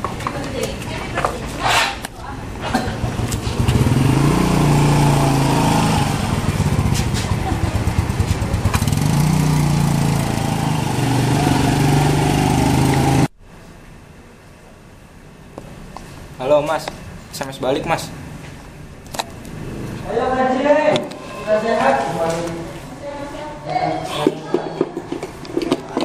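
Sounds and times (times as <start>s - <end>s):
motorcycle engine revving: 2.6s - 13.3s, 19.2s - 20.6s.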